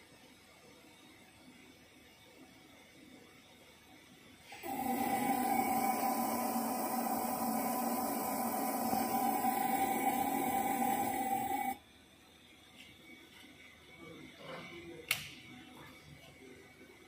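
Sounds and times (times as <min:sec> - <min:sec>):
electric motor hum and whine: 0:04.5 - 0:11.8
hiss: 0:04.5 - 0:11.8.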